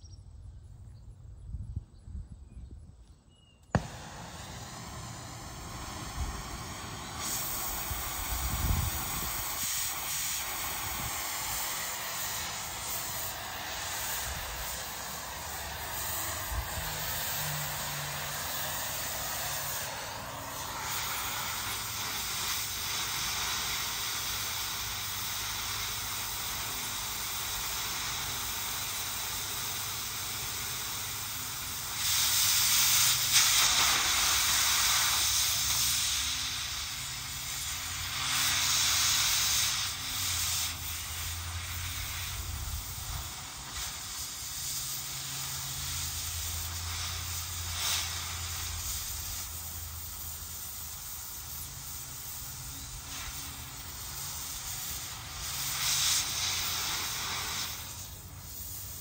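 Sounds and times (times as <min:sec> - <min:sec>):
cutting torch hissing: 0:03.7 - 0:59.0.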